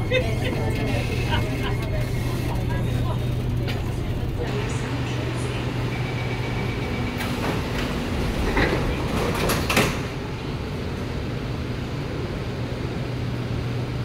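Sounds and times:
doors sliding shut: 7.1 - 10.3.

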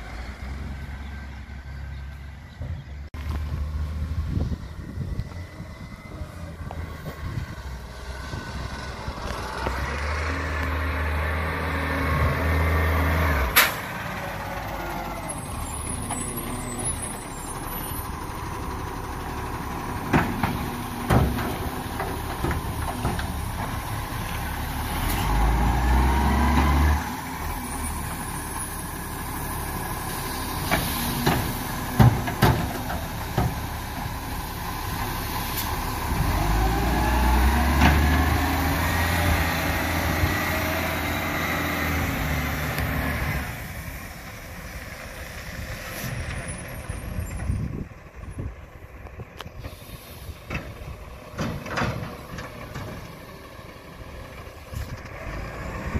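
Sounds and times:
diesel truck engine: 0.0 - 55.9
air brake hisses: 49.6 - 50.5.

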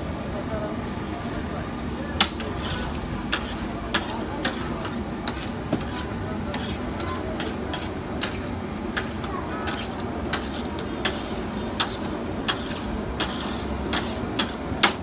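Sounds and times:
crowd chatter: 0.0 - 15.0
frying hiss: 0.0 - 15.0
metal spatula clacking on griddle: 3.3 - 15.0.

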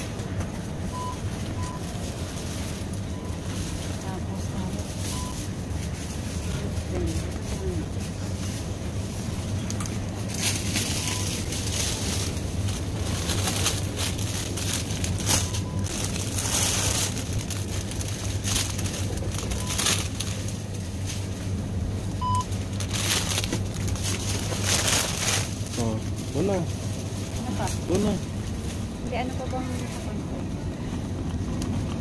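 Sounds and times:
steady low hum: 0.0 - 32.0
plastic bags crinkling: 9.6 - 21.3, 22.5 - 28.7
scanner short high beeps: 22.2 - 22.5.

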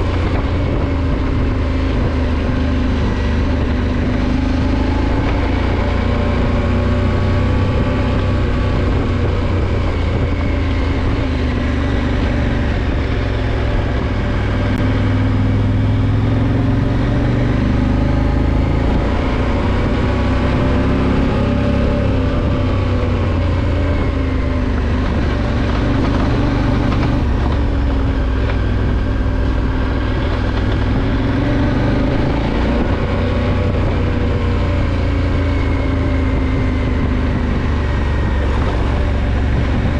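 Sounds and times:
motorcycle engine running: 0.0 - 39.9
wind rushing: 0.0 - 39.9.

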